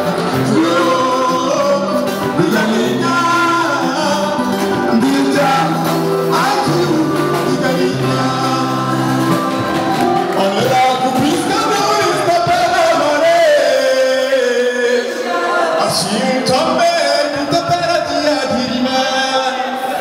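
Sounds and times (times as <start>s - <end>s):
live band playing: 0.0s - 20.0s
man singing into microphone: 0.0s - 20.0s
voices singing along: 0.0s - 20.0s.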